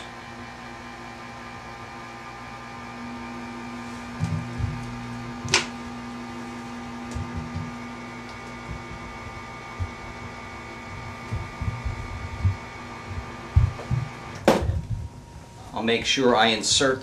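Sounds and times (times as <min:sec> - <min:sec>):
electrical hum: 0:00.0 - 0:17.0
low thumps: 0:04.0 - 0:05.9, 0:07.1 - 0:08.0, 0:08.6 - 0:15.4.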